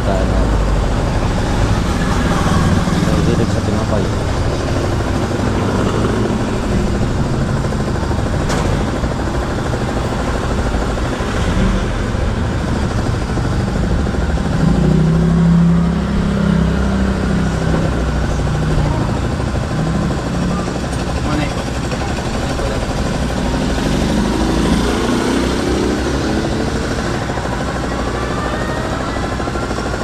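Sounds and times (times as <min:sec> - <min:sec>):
motorcycle engine running: 0:00.0 - 0:30.0
road and wind noise: 0:00.0 - 0:30.0.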